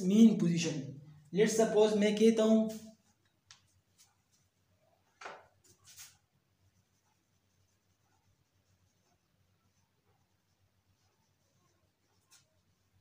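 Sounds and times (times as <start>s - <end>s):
marker squeaking on whiteboard: 2.7s - 13.0s.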